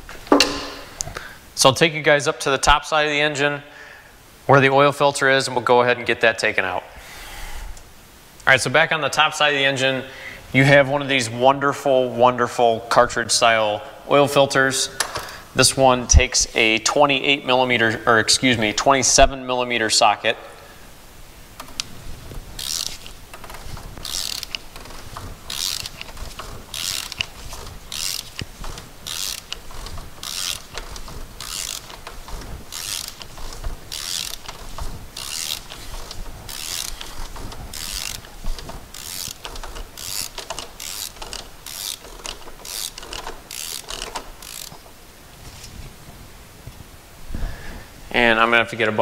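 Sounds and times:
ratchet wrench clicking: 21.6s - 45.0s.

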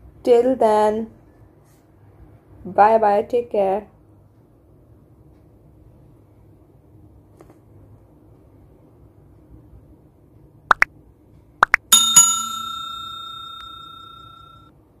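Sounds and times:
notification bell chime: 11.9s - 14.7s.

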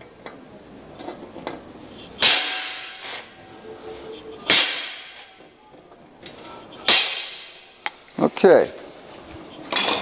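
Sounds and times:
hammer striking center punch: 2.2s - 3.3s, 4.4s - 5.4s, 6.8s - 7.6s.

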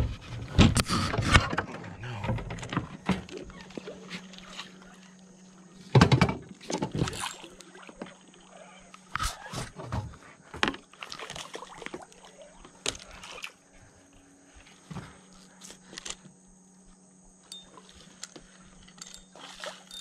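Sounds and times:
faint steady hum: 0.0s - 20.0s
fish splashing: 10.9s - 13.6s, 19.3s - 20.0s.

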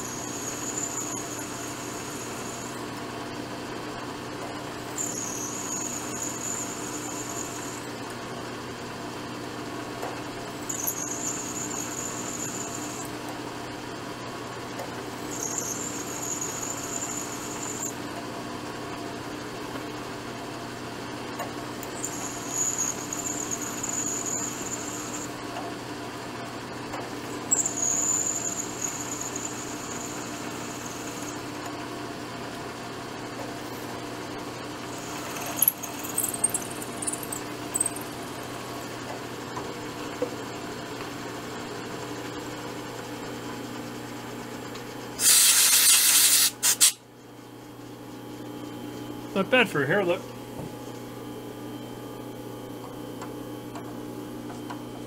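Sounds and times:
drill bit squealing: 0.0s - 2.8s, 4.9s - 8.0s, 10.6s - 13.2s, 15.2s - 18.0s, 21.9s - 25.4s, 27.3s - 31.4s, 34.9s - 38.8s
milling machine spindle running: 0.0s - 3.0s, 4.8s - 8.0s, 10.5s - 13.4s, 15.0s - 18.0s, 21.8s - 25.5s, 27.2s - 31.7s, 33.4s - 39.1s.

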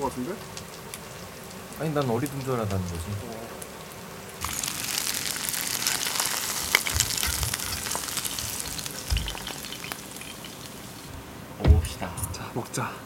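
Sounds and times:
hot oil sizzling and popping: 0.0s - 11.2s
frying pan thumps: 4.4s - 11.0s, 11.6s - 12.1s.

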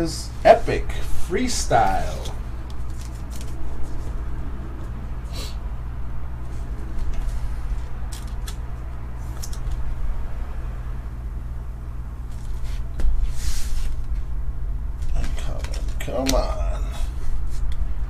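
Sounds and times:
low hum: 0.0s - 18.0s
trading cards rustling and sliding: 0.6s - 4.2s, 15.0s - 16.3s.

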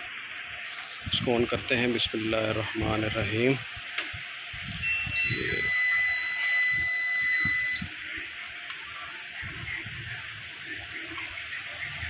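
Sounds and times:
inverter buzzer beeping: 4.7s - 8.0s.

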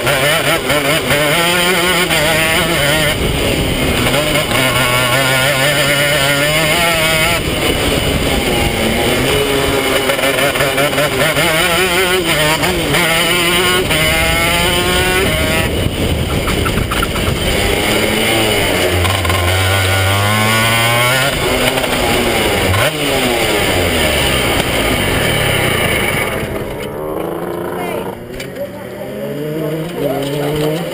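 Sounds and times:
kart engine revving: 0.0s - 30.9s.

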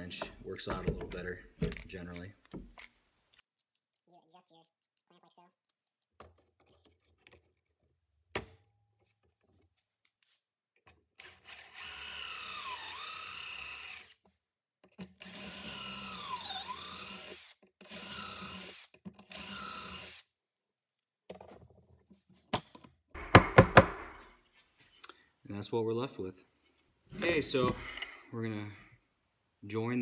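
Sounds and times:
cordless drill boring wood: 11.2s - 14.2s, 15.2s - 20.3s.

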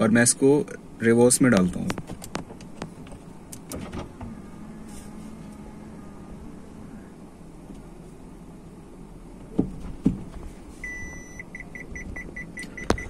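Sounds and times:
car engine idling hum: 0.0s - 13.0s
gear shift clunks: 1.8s - 4.4s, 9.4s - 13.0s
parking sensor beeping: 10.8s - 13.0s.

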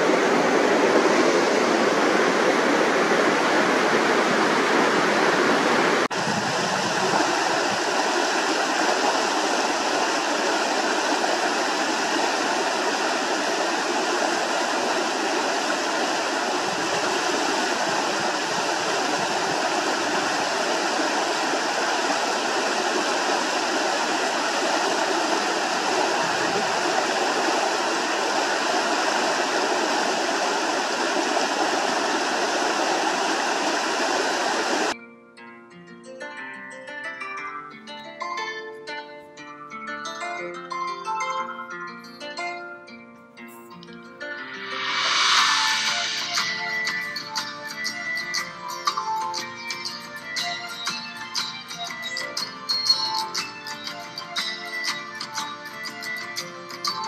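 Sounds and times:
creek rushing over rocks: 0.0s - 35.0s, 44.5s - 48.5s.

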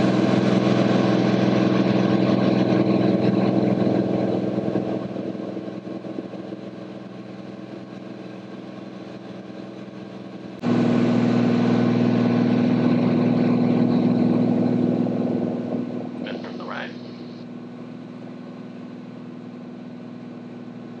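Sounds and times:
aircraft engine and propeller drone: 0.0s - 21.0s.

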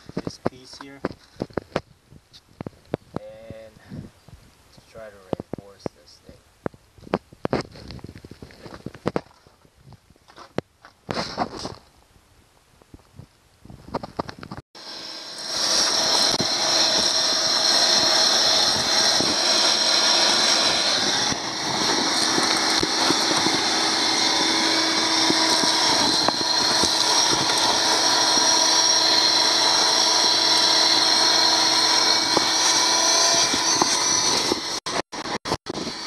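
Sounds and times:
vacuum cleaner whining: 14.8s - 36.0s
grit rattling up hose: 15.6s - 29.8s.

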